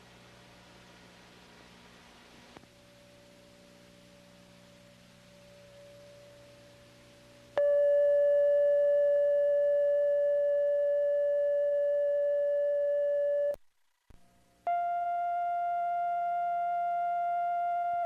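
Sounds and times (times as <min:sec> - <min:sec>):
steady test tone: 0:03.0 - 0:13.6
higher steady tone: 0:04.8 - 0:13.6.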